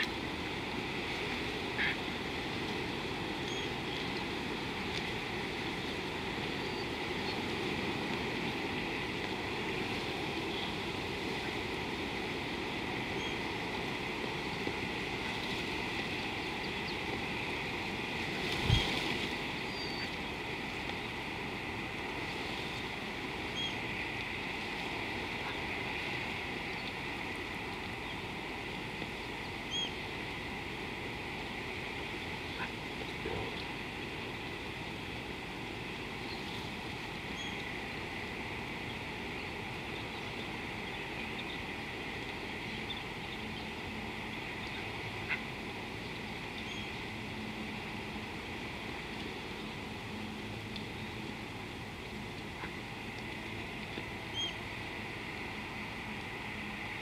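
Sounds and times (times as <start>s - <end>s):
faint high hum: 0.0s - 57.0s
hiss and rumble: 0.0s - 57.0s
bird chirps: 54.3s - 54.6s.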